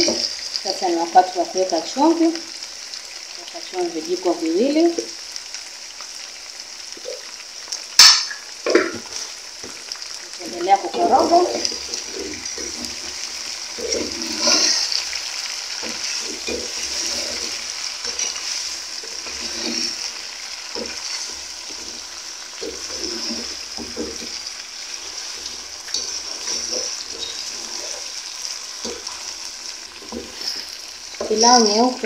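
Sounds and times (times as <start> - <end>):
chicken sizzling in hot oil: 0.0 - 32.0
spoon scraping a pot: 12.2 - 15.2, 15.8 - 28.1, 30.0 - 31.8.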